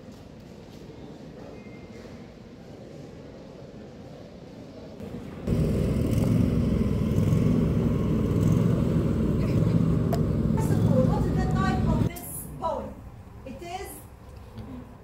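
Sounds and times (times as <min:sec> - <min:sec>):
engine idling low rumble: 0:05.0 - 0:12.1.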